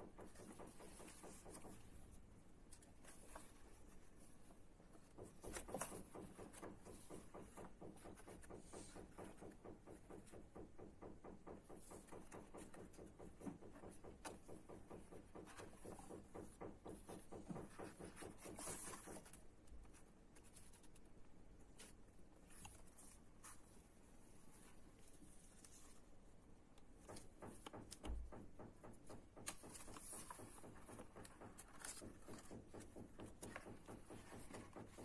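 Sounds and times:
book pages turning: 17.6 - 23.8, 29.4 - 35.0.

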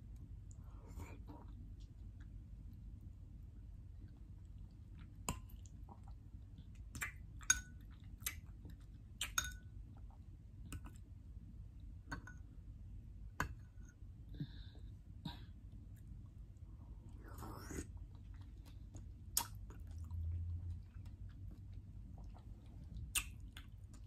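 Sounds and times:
faint steady hum: 0.0 - 24.0
fork clinking glass bowl: 9.4 - 9.6
wet chewing clicks: 18.0 - 24.0.

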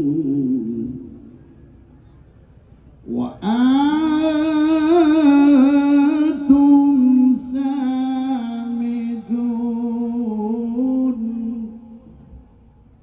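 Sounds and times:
man chanting melodic recitation: 3.0 - 12.0.

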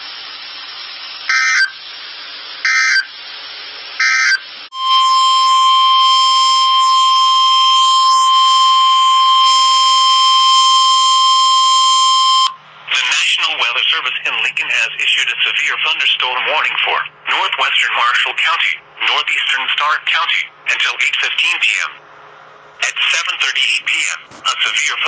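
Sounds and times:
steady warning alarm tone: 1.3 - 1.8, 2.6 - 3.1, 4.0 - 12.6
digital data chirps: 4.0 - 12.6
radio hiss: 12.8 - 22.0, 22.8 - 25.0.

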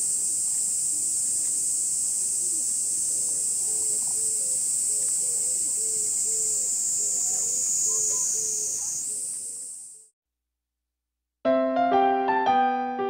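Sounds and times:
cicadas droning: 0.0 - 10.1.

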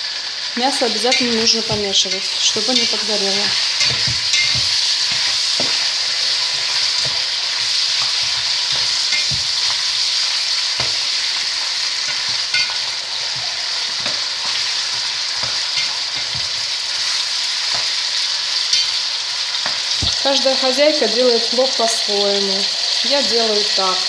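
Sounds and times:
meat sizzling in hot oil: 0.0 - 24.0
spatula knocking and scraping pot: 1.1 - 19.0.

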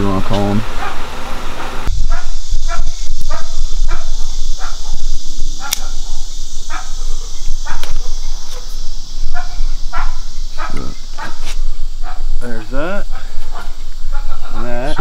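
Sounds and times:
steady high hiss: 0.0 - 15.0
dog barking: 0.8 - 4.9, 5.6 - 8.1, 9.3 - 12.3, 13.1 - 15.0.

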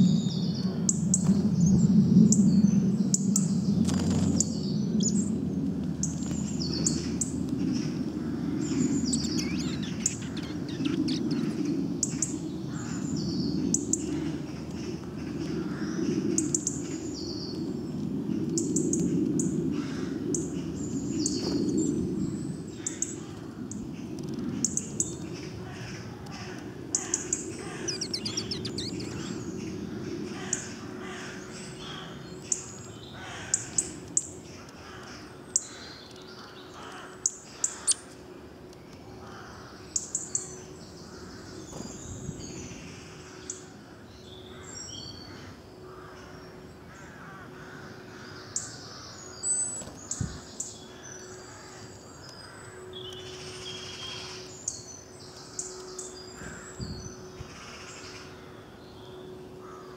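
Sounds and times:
birds chirping: 0.0 - 59.9.

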